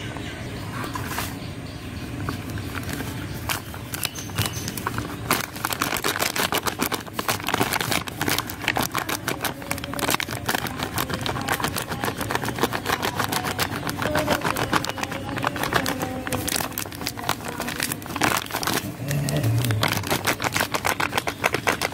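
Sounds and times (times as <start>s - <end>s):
paper packet crinkling: 2.3s - 21.9s.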